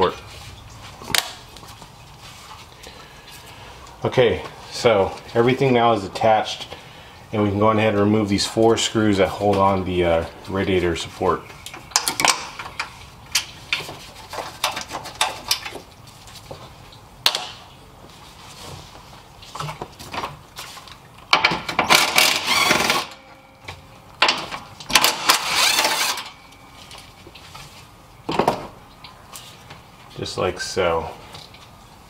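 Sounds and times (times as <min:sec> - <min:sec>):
power tool rattling: 0:21.8 - 0:23.2, 0:24.2 - 0:26.3.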